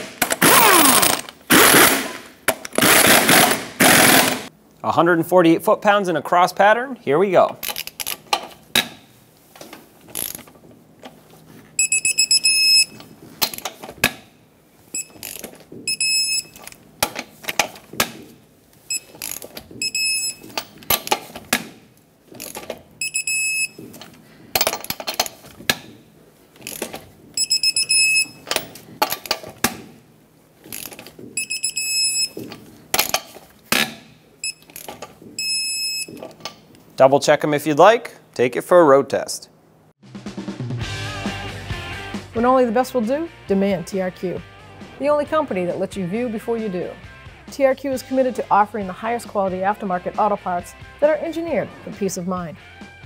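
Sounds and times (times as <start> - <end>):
high beeps: 11.8 - 13.0, 15.0 - 15.2, 15.9 - 16.6, 19.8 - 20.4, 23.0 - 23.8, 27.4 - 28.5, 31.4 - 32.4.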